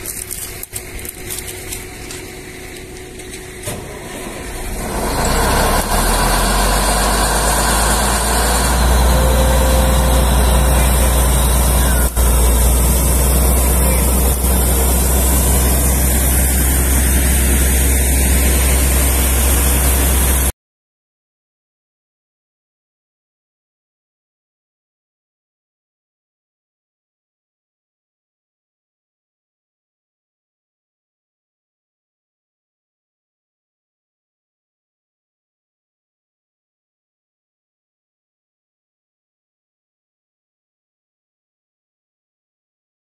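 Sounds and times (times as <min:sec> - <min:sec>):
diesel air compressor running: 0:00.0 - 0:20.5.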